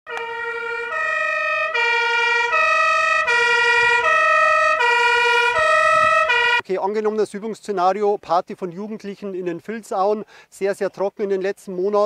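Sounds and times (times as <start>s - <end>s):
two-tone fire engine siren: 0.1s - 6.6s.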